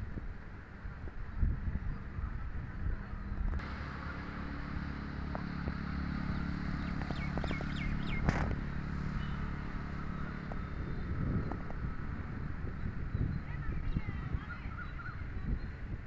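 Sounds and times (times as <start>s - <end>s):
low engine hum: 0.0s - 16.0s
bird chirping: 6.3s - 8.5s, 9.1s - 11.7s, 12.7s - 15.8s.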